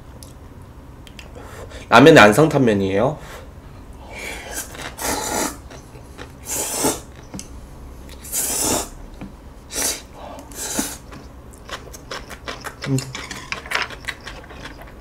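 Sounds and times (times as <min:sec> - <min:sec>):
person slurping noodles: 0:04.1 - 0:07.2, 0:08.2 - 0:09.0, 0:09.7 - 0:11.2.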